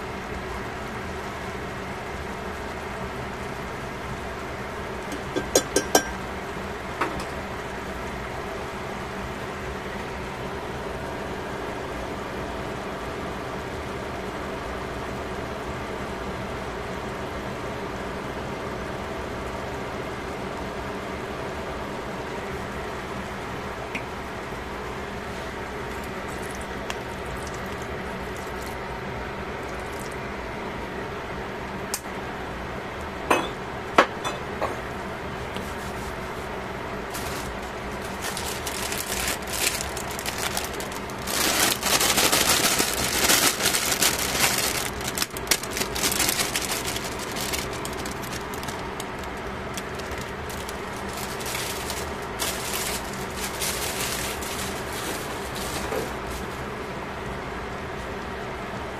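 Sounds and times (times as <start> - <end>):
background hum: 21.8 - 58.9
vegetables rustling into a pot: 35.6 - 56.8.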